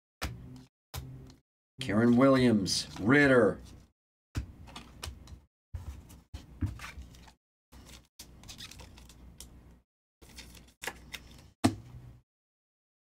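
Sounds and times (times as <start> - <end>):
cards shuffling by hand: 5.8 - 11.5.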